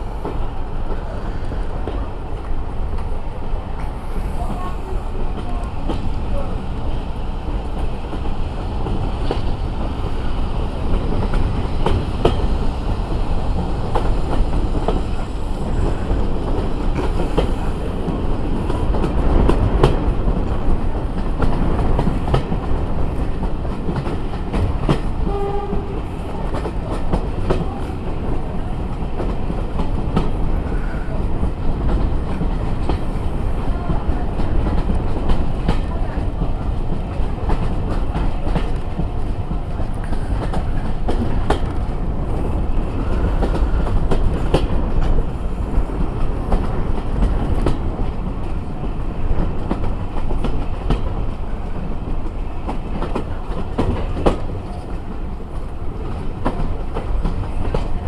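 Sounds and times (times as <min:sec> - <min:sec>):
train rumble: 0:00.0 - 0:58.0.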